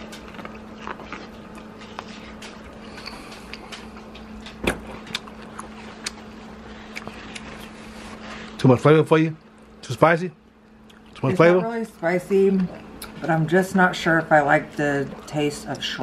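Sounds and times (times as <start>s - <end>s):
biting and chewing corn: 0.0s - 8.0s
steady low hum: 0.0s - 16.0s.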